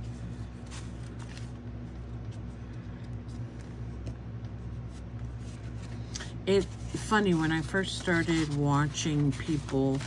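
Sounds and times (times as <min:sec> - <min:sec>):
steady low hum: 0:00.0 - 0:10.0
paper rustling and tapping: 0:00.6 - 0:05.4.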